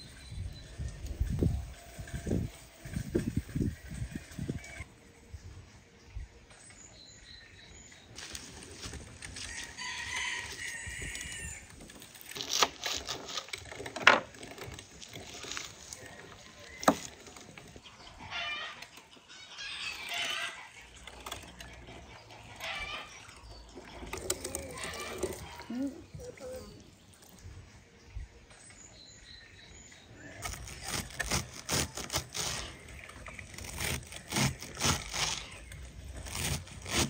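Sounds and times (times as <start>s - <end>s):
rooster crowing: 9.4s - 11.7s.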